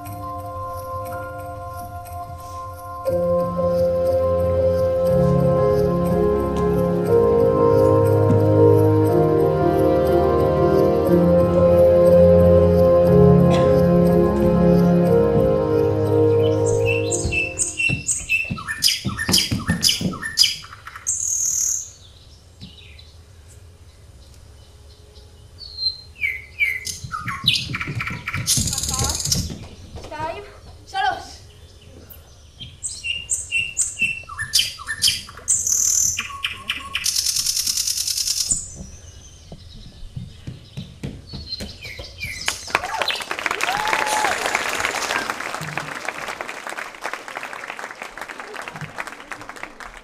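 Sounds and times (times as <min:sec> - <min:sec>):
birds chirping: 0:00.0 - 0:43.3
audience applauding: 0:42.4 - 0:50.0.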